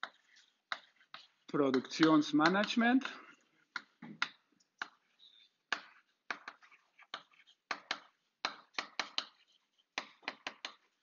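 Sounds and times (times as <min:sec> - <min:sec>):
chalk tapping on a blackboard: 0:00.0 - 0:11.0.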